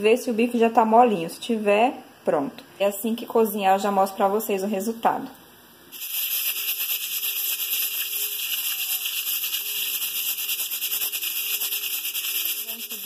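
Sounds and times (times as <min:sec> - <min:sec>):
pressure cooker valve hissing: 0:05.9 - 0:13.0.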